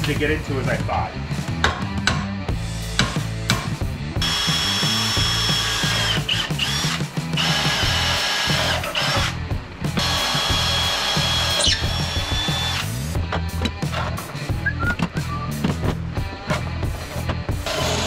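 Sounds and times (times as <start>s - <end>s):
cordless drill boring through metal: 4.2s - 9.4s, 10.0s - 12.9s, 17.6s - 18.0s.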